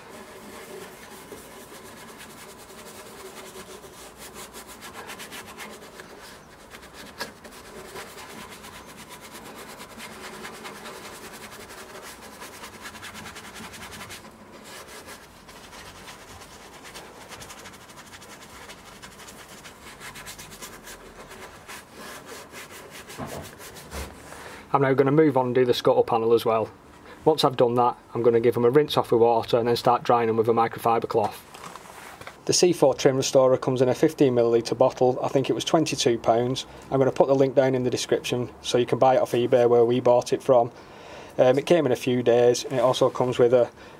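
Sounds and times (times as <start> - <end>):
brush scrubbing plastic: 0.0 - 24.5, 41.6 - 43.7.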